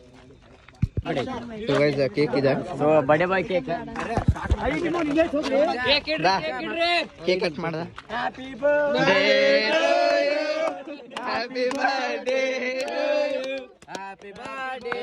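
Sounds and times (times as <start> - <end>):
group singing in unison: 8.1 - 15.0.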